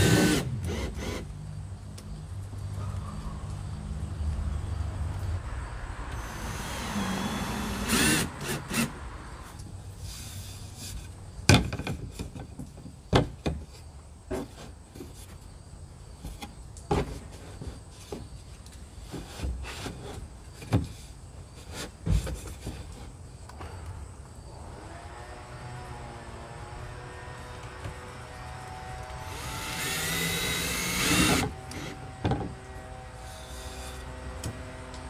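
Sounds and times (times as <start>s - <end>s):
distant traffic rumble: 0.0s - 13.1s, 22.4s - 35.0s
board scraping against plastic: 19.0s - 23.1s.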